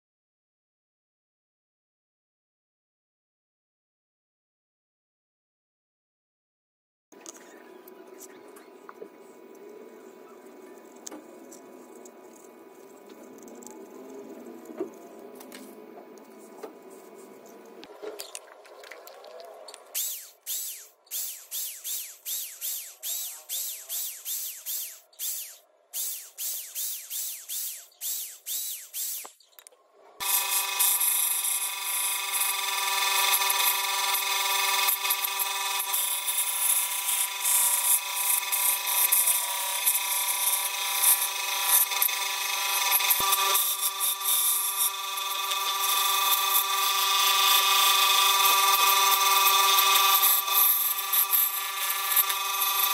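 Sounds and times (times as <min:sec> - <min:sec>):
scroll saw cutting wood: 0:10.7 - 0:52.9
electric drill running in bursts: 0:20.0 - 0:29.4, 0:30.2 - 0:52.9.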